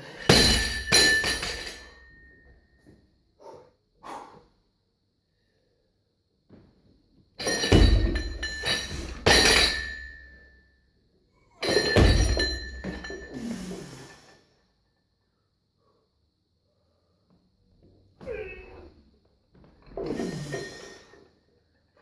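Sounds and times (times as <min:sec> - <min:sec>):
barbell plates rattling and clinking: 0:00.0 - 0:02.3, 0:07.4 - 0:10.5, 0:11.6 - 0:13.4
barbell dropping with heavy thump: 0:07.4 - 0:10.1, 0:11.6 - 0:13.3.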